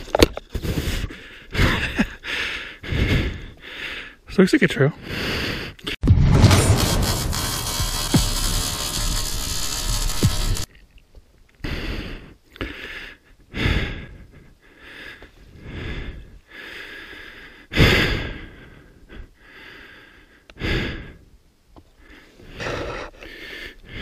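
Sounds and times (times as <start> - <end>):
person breathing hard: 0.5 - 4.2, 5.0 - 6.0, 11.6 - 21.3, 22.0 - 24.0.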